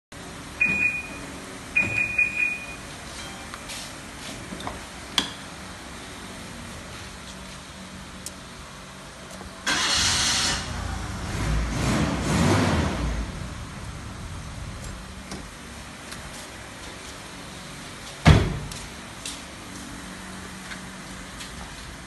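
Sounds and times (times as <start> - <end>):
car alarm chirping: 0.6 - 1.2, 1.8 - 2.8.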